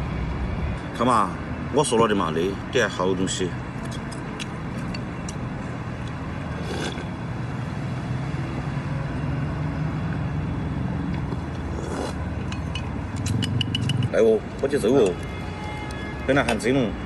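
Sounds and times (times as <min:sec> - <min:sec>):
engine humming: 0:03.8 - 0:16.1
slurping soup from a bowl: 0:06.5 - 0:07.2, 0:11.3 - 0:12.3.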